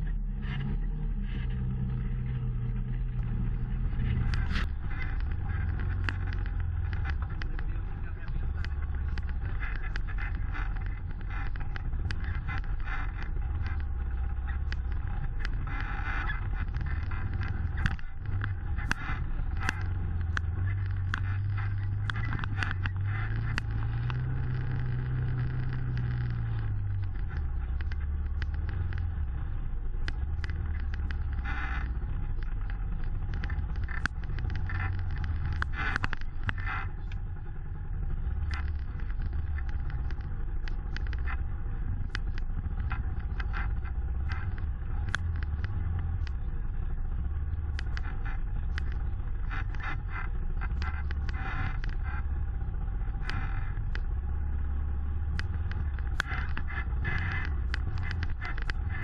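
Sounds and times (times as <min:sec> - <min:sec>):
utility vehicle engine at low revs: 0:00.0 - 0:59.0
rocks knocking under tyres: 0:03.2 - 0:29.4, 0:30.0 - 0:37.2, 0:38.1 - 0:46.5, 0:55.2 - 0:59.0.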